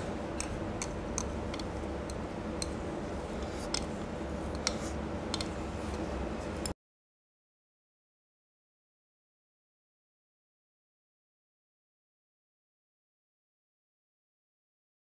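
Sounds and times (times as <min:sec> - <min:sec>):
low room hum: 0:00.0 - 0:06.8
chopsticks clicking on bowl: 0:00.3 - 0:02.8, 0:03.4 - 0:06.0.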